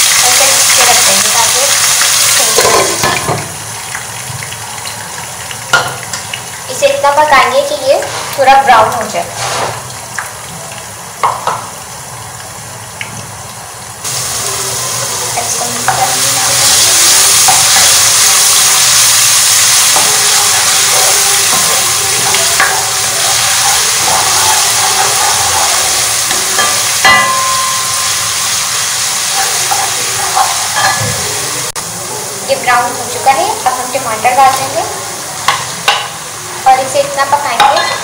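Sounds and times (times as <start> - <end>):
paste sizzling in oil: 0.0 - 12.1, 13.6 - 38.0
spatula clinking against pan: 26.3 - 28.2.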